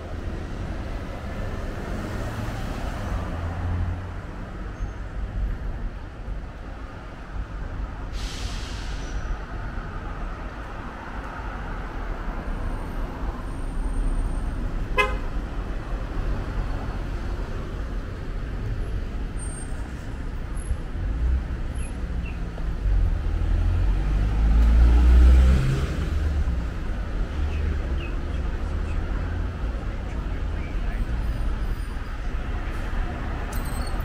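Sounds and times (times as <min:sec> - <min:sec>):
street traffic: 0:00.0 - 0:34.0
car horn toot: 0:15.0 - 0:15.3
vehicle passing close: 0:23.1 - 0:26.7.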